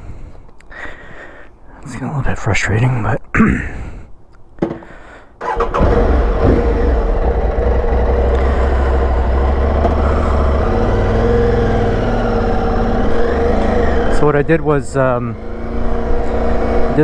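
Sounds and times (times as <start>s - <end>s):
motorcycle engine starting and idling: 5.4s - 17.0s.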